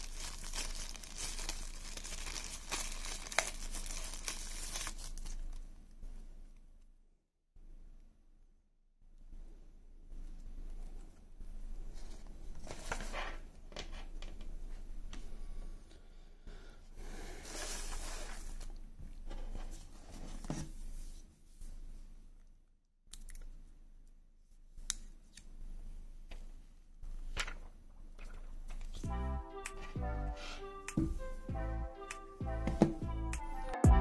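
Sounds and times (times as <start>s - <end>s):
packaging paper rustling: 0.0s - 5.6s.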